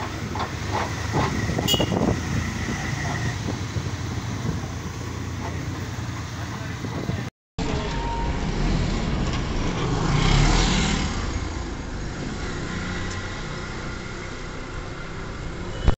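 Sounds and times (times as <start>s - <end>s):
vehicle passing by: 8.3s - 15.6s.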